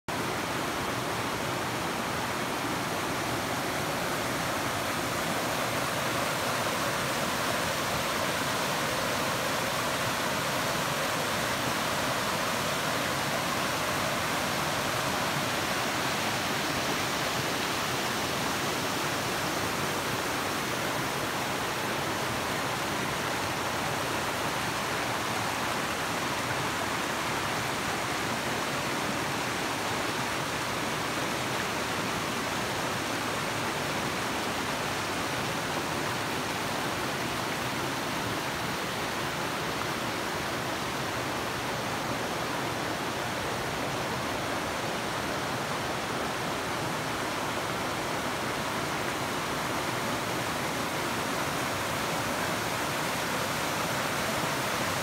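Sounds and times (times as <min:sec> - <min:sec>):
waterfall and river rushing: 0:00.1 - 0:55.0.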